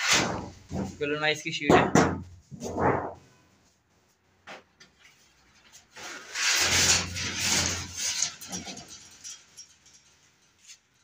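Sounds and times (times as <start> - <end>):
metal scraping slide: 6.0 - 10.0
scraping rattle of metal: 6.0 - 11.0.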